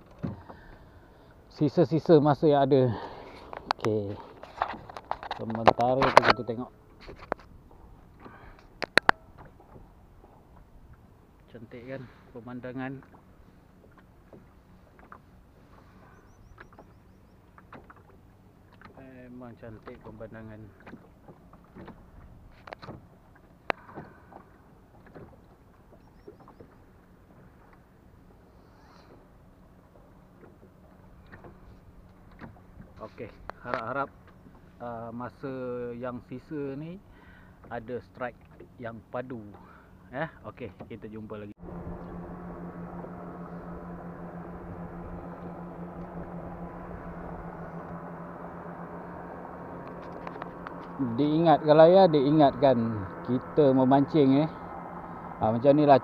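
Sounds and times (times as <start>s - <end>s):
outboard motor running: 0.0s - 56.0s
water slapping boat hull: 0.0s - 56.0s
faint clicks: 49.8s - 51.0s.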